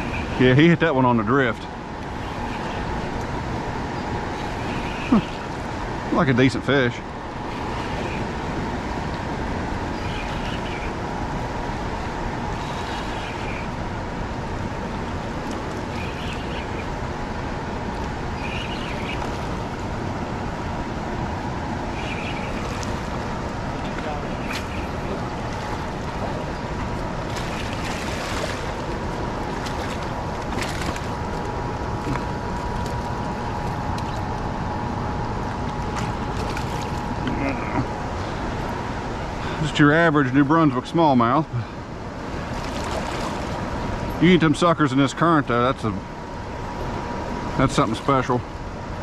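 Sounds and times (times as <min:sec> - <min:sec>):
faint steady hum: 0:00.0 - 0:49.0
fast river current rushing: 0:01.8 - 0:32.8, 0:41.6 - 0:45.4.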